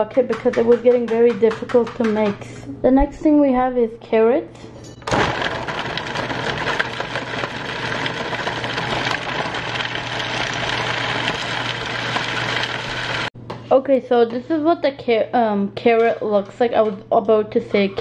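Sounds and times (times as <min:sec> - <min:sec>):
food processor chopping carrot: 0:05.1 - 0:13.3.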